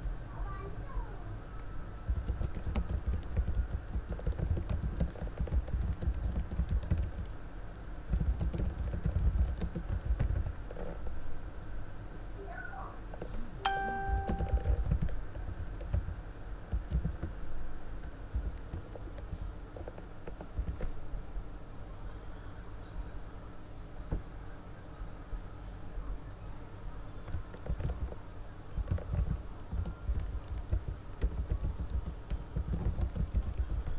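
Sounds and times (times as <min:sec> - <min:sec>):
irregular clicking: 0:02.1 - 0:07.4, 0:08.1 - 0:10.6, 0:16.7 - 0:17.3, 0:27.2 - 0:28.2, 0:28.8 - 0:33.9
brief pitched tone: 0:13.7 - 0:14.8.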